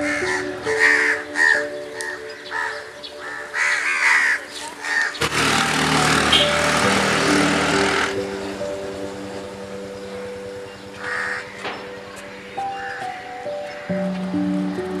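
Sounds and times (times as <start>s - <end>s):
crows cawing: 0.0s - 6.7s, 11.0s - 14.0s
background music: 0.0s - 15.0s.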